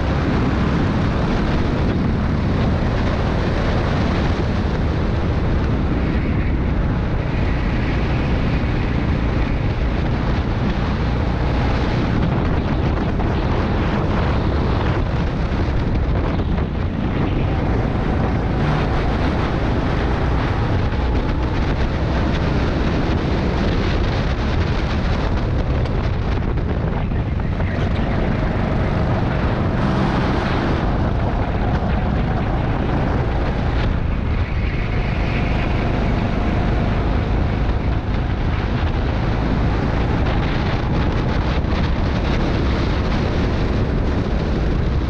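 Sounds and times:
go-kart engine running hard: 0.0 - 45.0
wind noise on microphone: 0.0 - 45.0.

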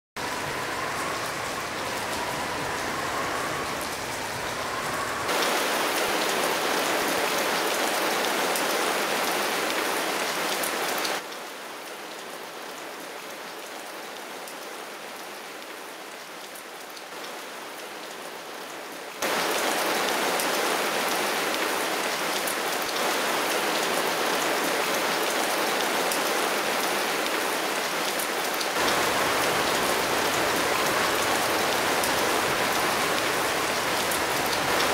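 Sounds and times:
heavy rain hissing: 0.2 - 11.3, 19.2 - 34.9.

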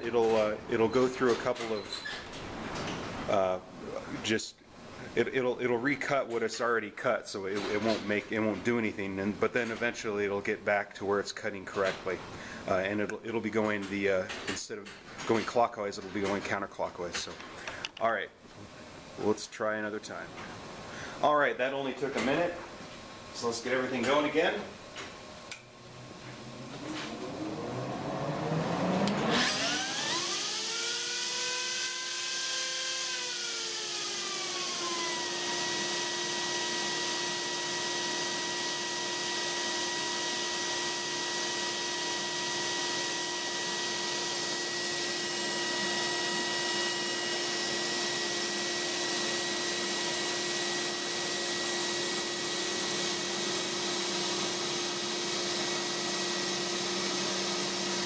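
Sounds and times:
router whine: 25.9 - 58.0.

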